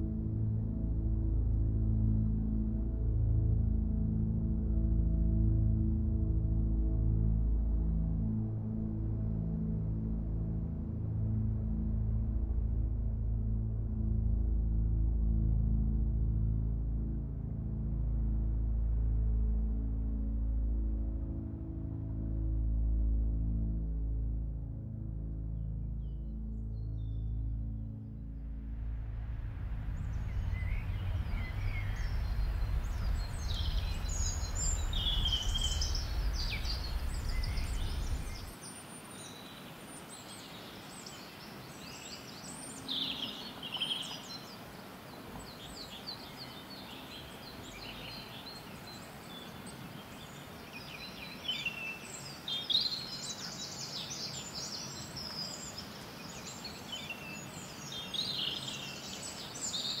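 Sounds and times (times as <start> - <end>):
low city rumble: 26.5 - 38.6
small birds chirping: 29.9 - 60.0.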